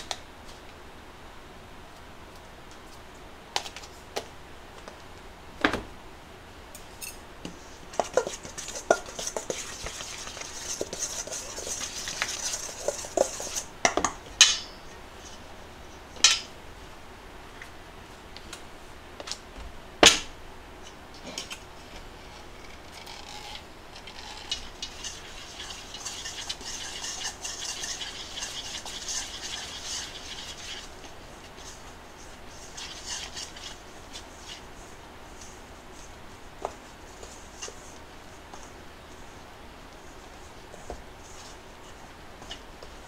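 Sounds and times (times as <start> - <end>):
chopsticks scraping steel bowl: 8.0 - 13.7, 22.4 - 31.8, 32.5 - 34.6.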